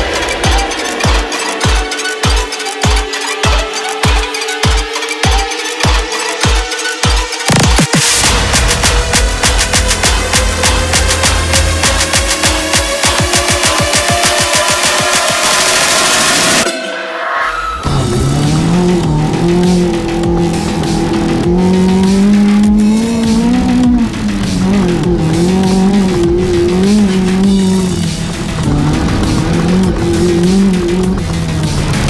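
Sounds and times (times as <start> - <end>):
buggy engine running hard: 0.0 - 16.6, 17.8 - 32.0.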